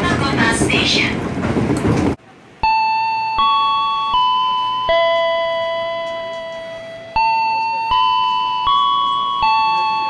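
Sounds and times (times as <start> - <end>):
electronic chime melody: 2.6 - 10.0.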